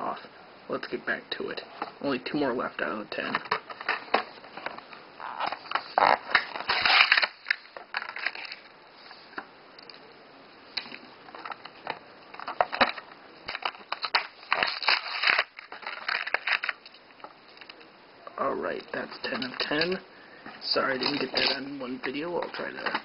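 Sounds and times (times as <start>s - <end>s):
plastic blister pack crackling: 3.3s - 8.7s, 10.8s - 17.9s.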